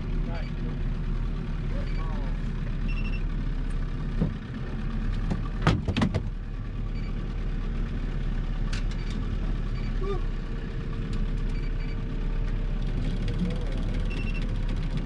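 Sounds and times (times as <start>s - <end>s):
boat motor running: 0.0s - 15.0s
faint short beeps: 1.8s - 2.2s, 2.9s - 3.2s, 14.0s - 14.5s.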